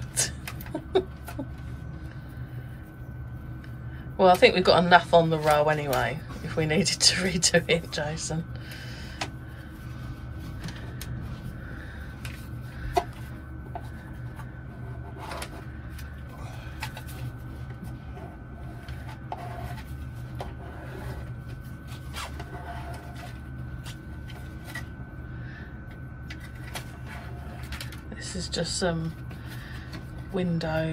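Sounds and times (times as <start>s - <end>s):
steady low hum: 0.0s - 30.9s.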